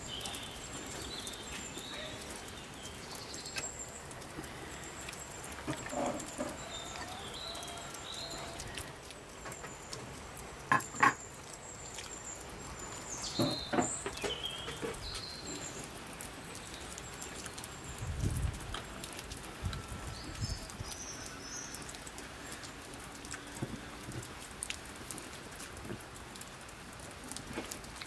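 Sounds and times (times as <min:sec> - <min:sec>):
birds chirping: 0:00.0 - 0:19.2.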